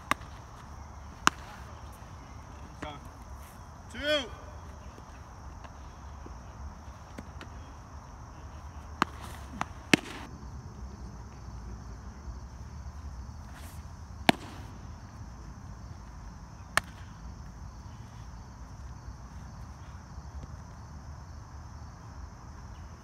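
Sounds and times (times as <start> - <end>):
baseball smacking into leather mitt: 0.0 - 3.4, 8.4 - 10.3, 13.5 - 14.8, 16.7 - 17.2
crickets chirping: 0.0 - 23.0.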